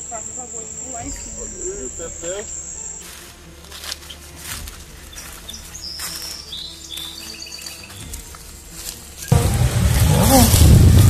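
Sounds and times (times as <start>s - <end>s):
high-pitched insect drone: 0.0s - 9.4s
short high bird chirps: 5.1s - 8.1s.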